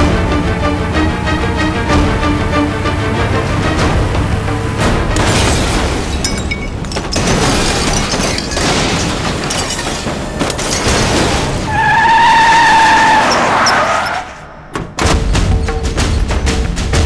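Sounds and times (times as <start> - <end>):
engine and tyre noise: 0.0 - 17.0
car crashing and impacts: 5.1 - 16.2.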